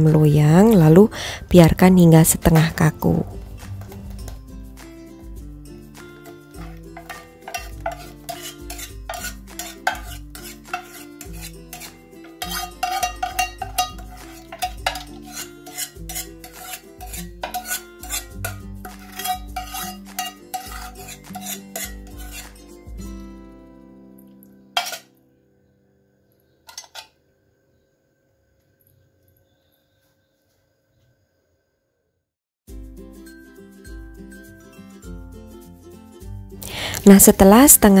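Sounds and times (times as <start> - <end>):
metal spoon scraping a pot: 6.2 - 22.7, 24.8 - 25.1, 26.7 - 27.1.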